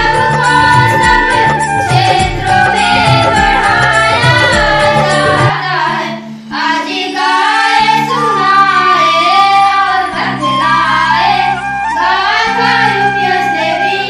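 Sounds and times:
girls singing together: 0.0 - 14.0
low drum beat: 0.8 - 5.5.

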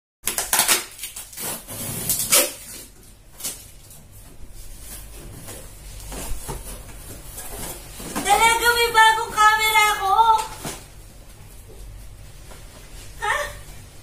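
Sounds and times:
cardboard ripping and scraping: 0.3 - 3.8
cardboard rustling: 0.5 - 11.0.

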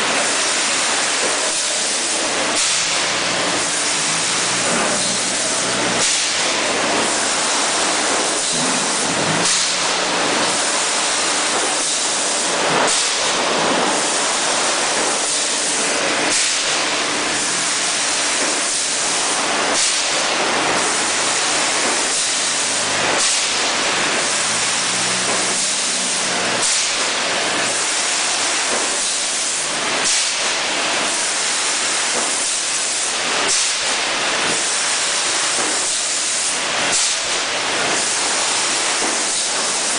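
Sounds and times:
bottling machinery hissing: 0.0 - 39.9
short sharp hisses and clacks: 6.0 - 6.5, 12.8 - 13.4, 16.3 - 16.8, 23.2 - 24.6, 30.0 - 30.6, 33.5 - 34.9, 36.9 - 39.9.

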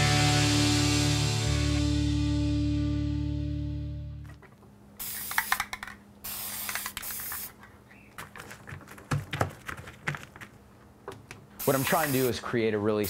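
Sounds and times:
music: 0.0 - 4.3
spray-paint can hissing: 5.0 - 7.6, 11.6 - 12.4.

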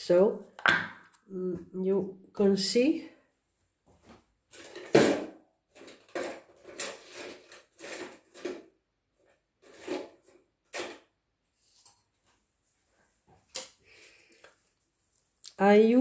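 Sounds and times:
containers clunking and rustling: 4.5 - 11.2.

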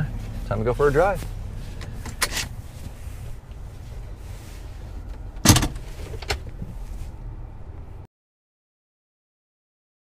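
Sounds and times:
truck engine idling: 0.0 - 7.8.

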